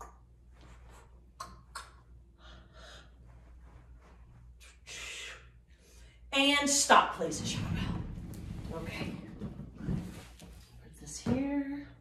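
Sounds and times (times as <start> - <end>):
woman breathing with effort: 2.3 - 3.4.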